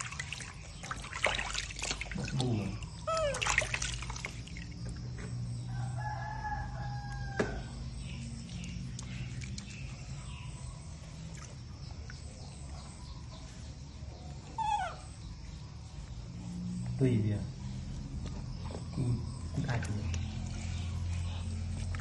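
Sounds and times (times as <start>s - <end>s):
long level animal call: 3.0s - 3.6s, 14.4s - 15.3s.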